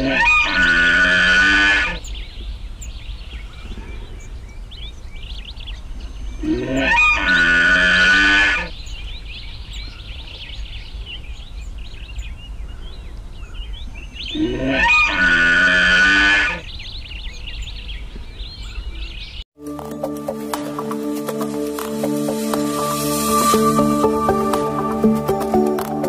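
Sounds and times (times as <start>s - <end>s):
loud animal call: 0.0s - 2.0s, 6.4s - 8.8s, 14.3s - 16.7s
birds chirping: 0.0s - 26.0s.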